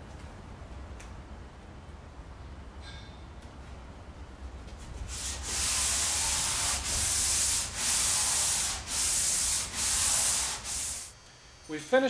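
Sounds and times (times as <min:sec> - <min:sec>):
sandpaper rubbing on metal: 0:05.0 - 0:11.1.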